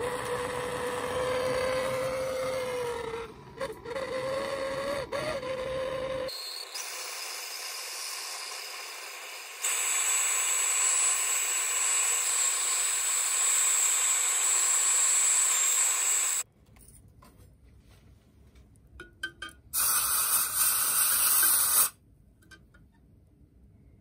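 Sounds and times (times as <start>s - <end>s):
steady high whistle: 5.2s - 9.0s
gas torch hissing: 6.6s - 16.4s, 19.8s - 22.0s.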